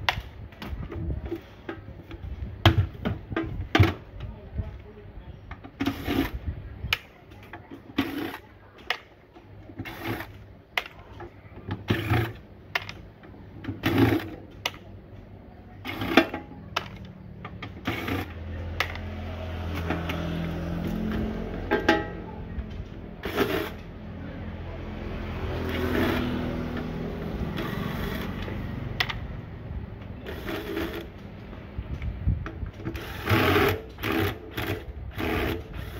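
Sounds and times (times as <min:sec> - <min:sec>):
cordless drill spinning: 0:25.6 - 0:26.3, 0:27.5 - 0:28.5, 0:30.2 - 0:31.1, 0:32.9 - 0:35.9.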